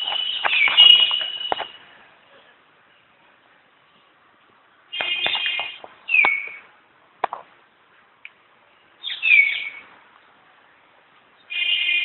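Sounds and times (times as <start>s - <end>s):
bird calling: 5.0s - 6.6s, 9.0s - 9.8s.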